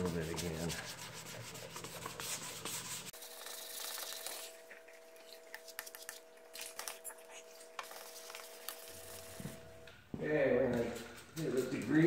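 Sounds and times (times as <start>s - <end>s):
sandpaper rasping: 0.0s - 4.6s.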